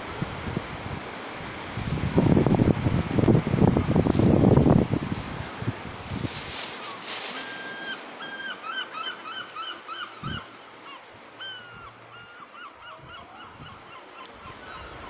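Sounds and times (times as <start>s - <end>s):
large bird calling: 6.8s - 15.0s.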